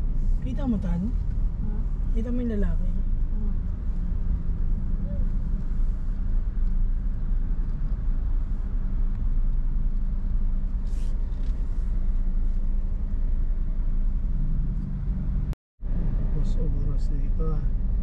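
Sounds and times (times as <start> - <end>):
vehicle engine rumbling: 0.0 - 18.0.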